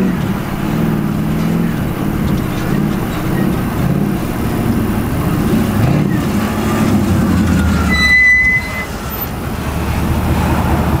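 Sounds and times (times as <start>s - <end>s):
truck engine revving: 0.0s - 11.0s
short high squeal: 7.6s - 9.3s.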